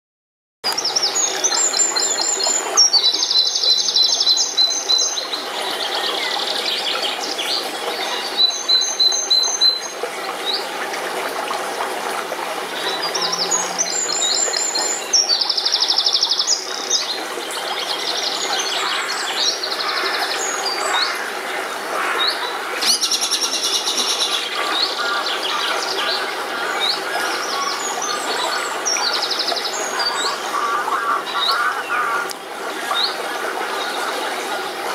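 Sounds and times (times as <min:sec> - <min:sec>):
stream rushing: 0:00.7 - 0:34.9
songbirds singing: 0:12.6 - 0:33.2.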